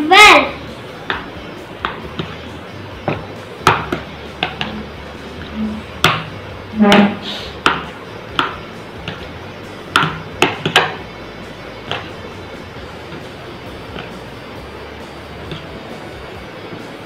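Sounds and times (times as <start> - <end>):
person humming: 4.6 - 6.0.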